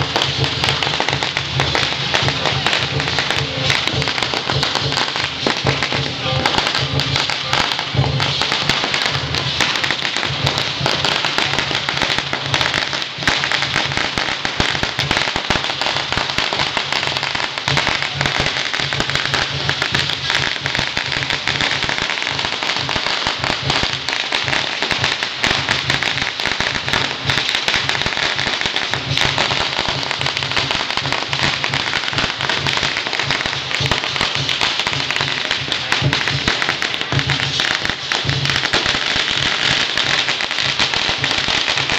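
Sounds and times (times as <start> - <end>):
firecrackers crackling: 0.0 - 41.9
low pulsing beat: 0.0 - 41.9.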